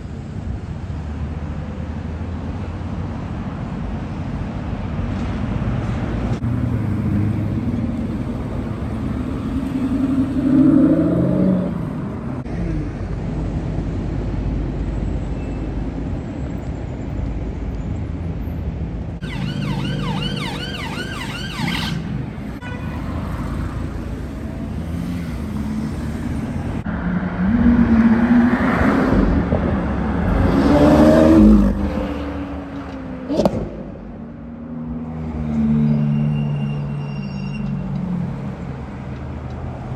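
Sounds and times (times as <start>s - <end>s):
city traffic noise: 0.0s - 39.9s
siren wailing: 19.2s - 22.2s.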